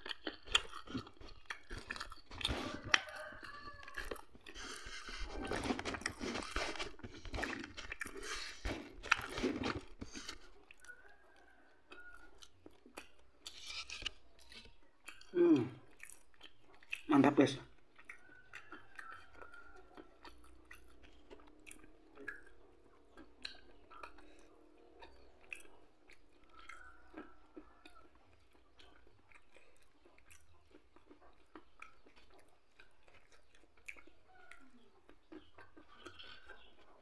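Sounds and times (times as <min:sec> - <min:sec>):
person chewing: 0:00.0 - 0:37.0.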